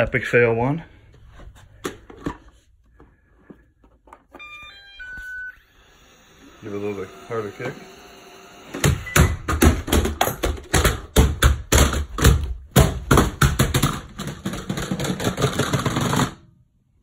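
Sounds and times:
robot vacuum tumbling down stairs: 8.7 - 16.4.

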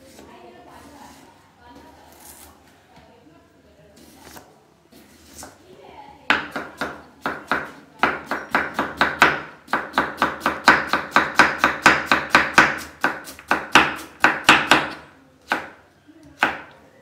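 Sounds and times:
knife chopping on wooden board: 6.3 - 15.8.

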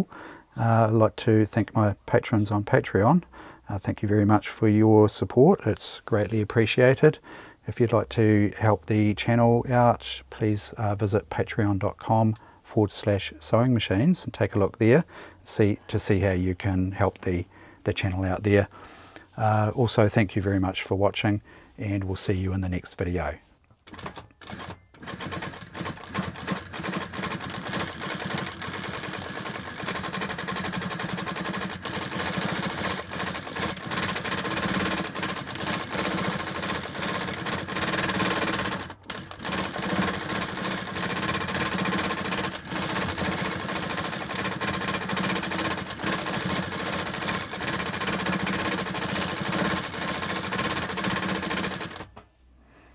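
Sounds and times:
industrial sewing machine stitching: 23.9 - 52.1.

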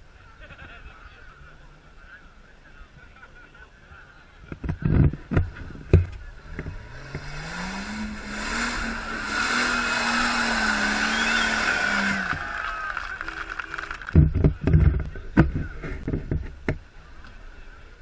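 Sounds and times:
engine revving: 5.9 - 15.0.

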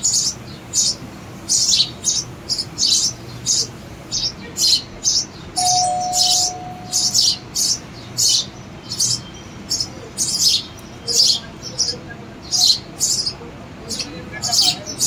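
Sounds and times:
chicks begging chirps: 5.6 - 7.8.

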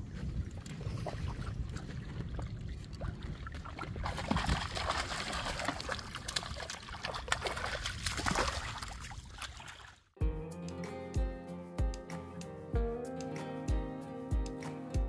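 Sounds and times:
water splashing and trickling: 0.0 - 10.2.

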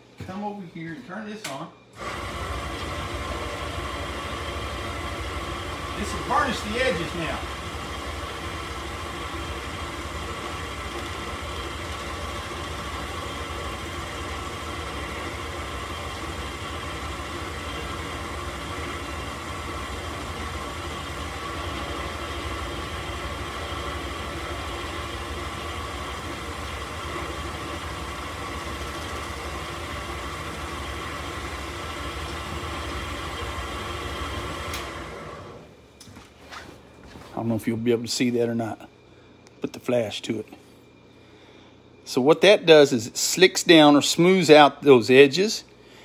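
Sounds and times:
drill press humming: 1.9 - 35.8.

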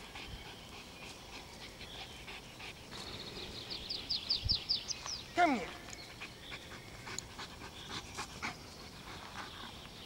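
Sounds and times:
dog panting: 0.0 - 3.1, 6.0 - 10.0.

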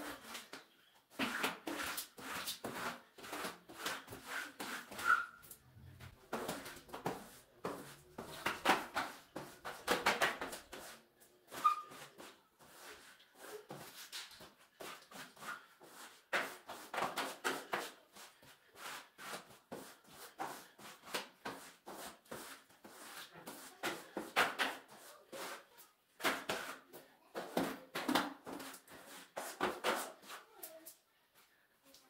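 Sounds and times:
squeegee scraping wet tiles: 1.2 - 5.6, 6.4 - 26.9.

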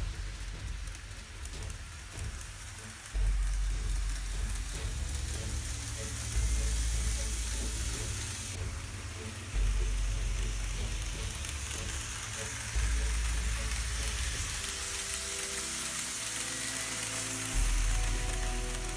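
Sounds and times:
low rumble: 0.0 - 15.1
model trains rolling hiss: 0.0 - 18.9.

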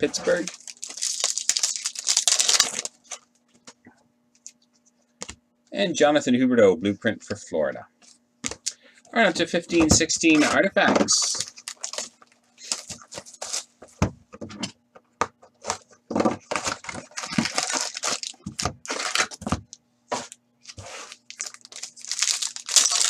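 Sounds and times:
foil pack crinkling and tearing: 0.0 - 3.2, 11.1 - 13.7, 16.5 - 19.4, 20.9 - 23.0.

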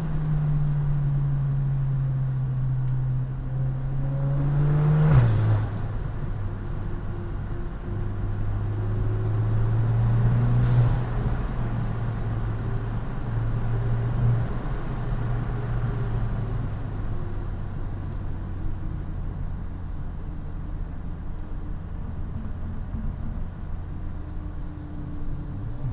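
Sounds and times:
car engine and exhaust drone: 0.0 - 25.9.

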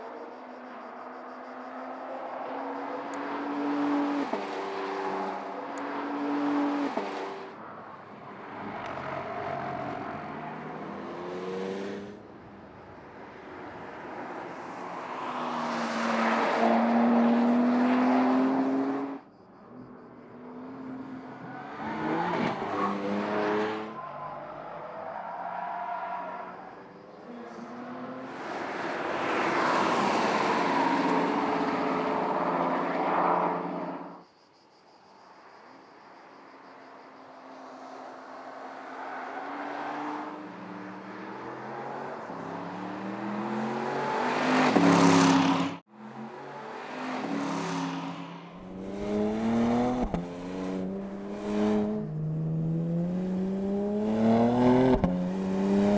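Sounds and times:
car engine revving: 48.6 - 55.9.

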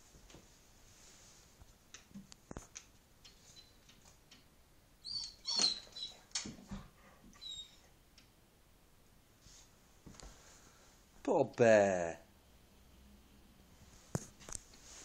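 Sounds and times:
dog whining: 5.0 - 6.3, 7.3 - 8.0.

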